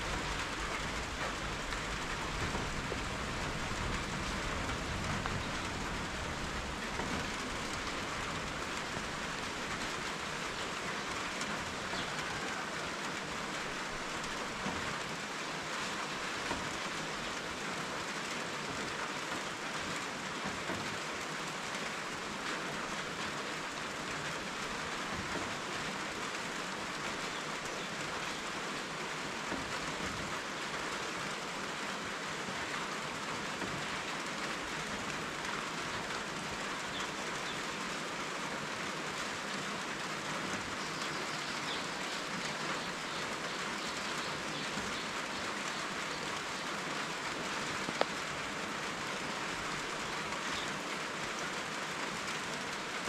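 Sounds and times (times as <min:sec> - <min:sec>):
steady rainfall: 0:00.0 - 0:53.0
faint drip ticks: 0:47.8 - 0:48.2.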